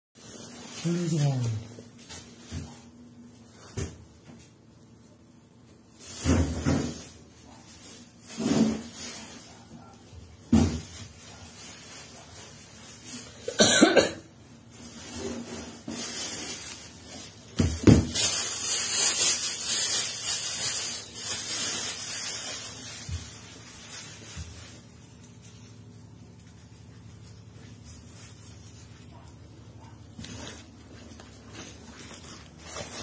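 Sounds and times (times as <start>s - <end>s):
short sharp cough-like bursts: 13.4s - 14.2s.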